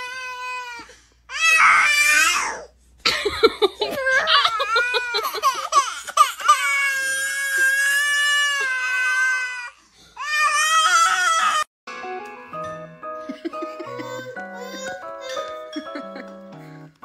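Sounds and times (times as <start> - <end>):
baby crying: 0.0 - 2.7, 3.8 - 11.7, 13.8 - 15.8
music: 11.9 - 17.0.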